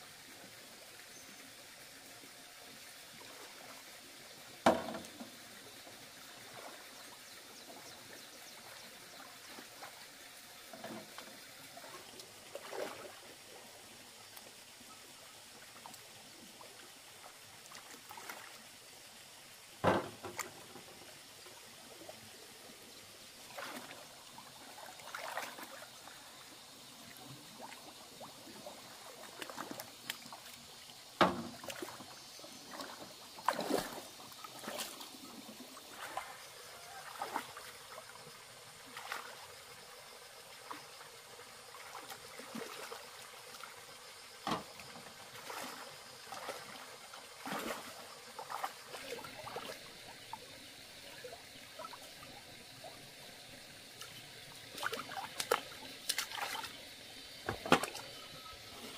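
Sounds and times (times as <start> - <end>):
hands splashing in water: 54.8 - 56.7.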